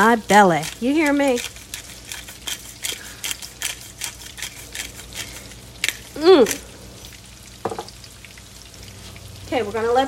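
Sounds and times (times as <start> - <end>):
pepper grinder clicking: 0.4 - 6.6
person humming: 6.1 - 6.7.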